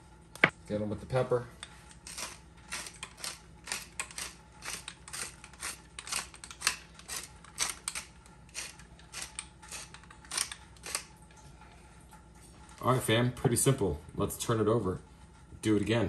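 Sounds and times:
pepper mill grinding: 1.6 - 11.1.

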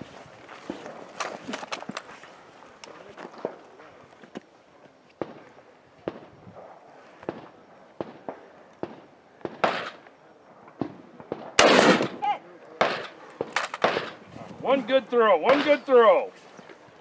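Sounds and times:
rifle shots: 7.2 - 10.0, 10.7 - 14.2, 15.4 - 15.9.

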